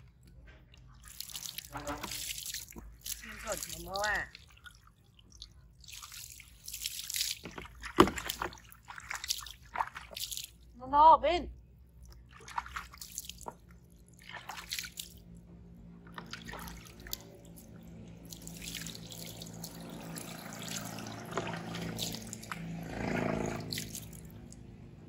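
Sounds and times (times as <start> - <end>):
water pouring and splashing: 0.0 - 10.8, 11.8 - 24.7
water dripping on concrete: 0.8 - 7.6, 9.2 - 10.6, 16.2 - 22.7, 23.6 - 24.6.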